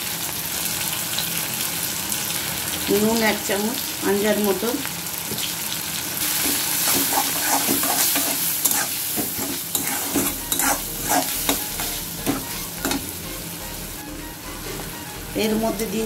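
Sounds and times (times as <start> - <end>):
food sizzling in hot oil: 0.0 - 16.0
steel spatula scraping pan: 6.4 - 13.1.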